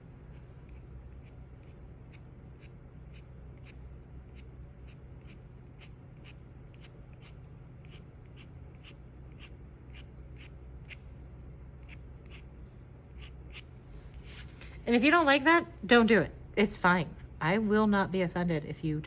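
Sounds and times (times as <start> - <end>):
scratchy drawing strokes on paper: 0.0 - 11.1, 11.8 - 12.5, 13.2 - 14.6
low hum: 0.0 - 19.0.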